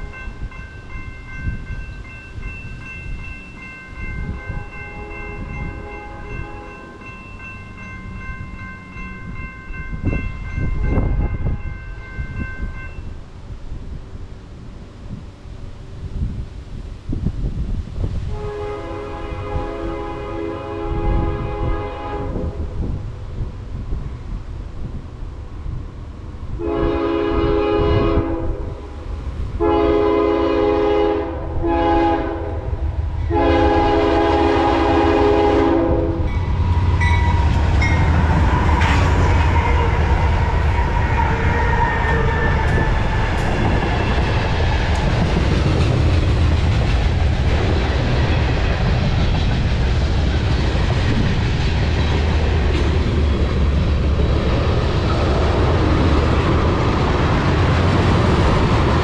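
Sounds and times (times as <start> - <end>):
train rumbling past: 0.0 - 59.0
locomotive air horn: 4.5 - 6.9, 18.3 - 22.7, 26.6 - 28.8, 29.6 - 43.7
wheels on rails: 36.2 - 59.0.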